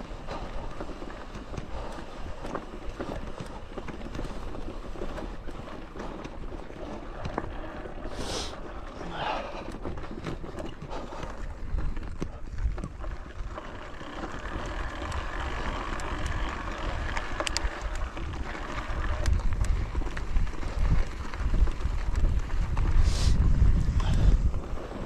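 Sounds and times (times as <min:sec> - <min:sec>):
wind buffeting microphone: 0:00.0 - 0:25.0
small clicks and rattles: 0:08.7 - 0:22.9.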